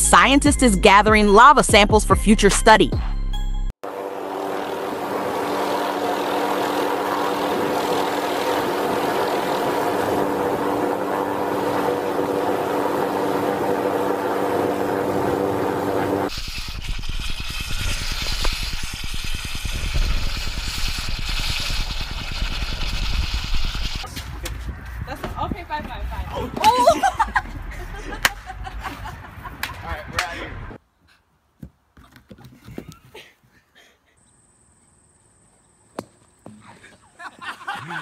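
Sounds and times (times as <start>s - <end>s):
steady droning hum: 3.8s - 24.0s.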